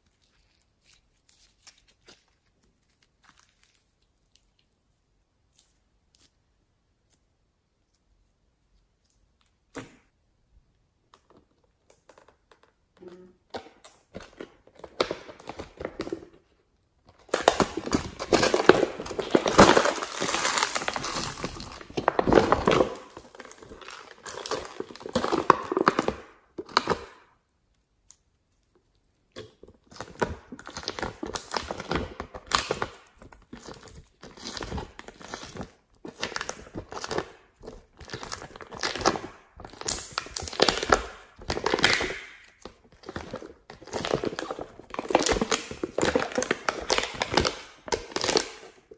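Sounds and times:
slime squishing and crackling: 0.0 - 6.4, 17.1 - 48.9
thin plastic crinkling: 0.0 - 6.4, 13.8 - 48.9.

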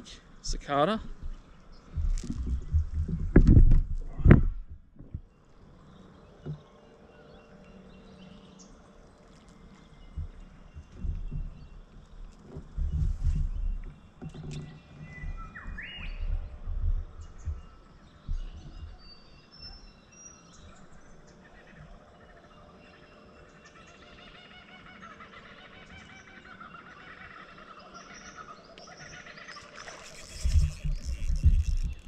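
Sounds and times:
low knocks and thumps: 1.0 - 5.3, 10.1 - 19.1
birds calling and singing: 5.2 - 32.0.

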